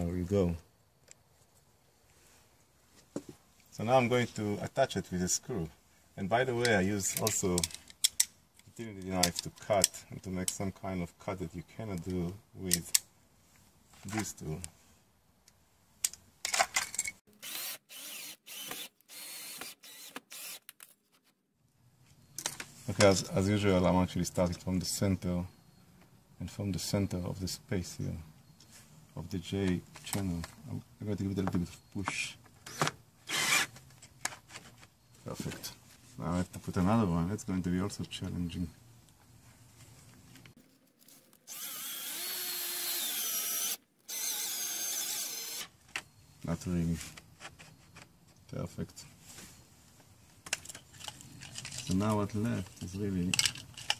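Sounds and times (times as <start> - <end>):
cordless drill driving screw: 17.4 - 20.7, 32.7 - 33.7, 41.5 - 45.7.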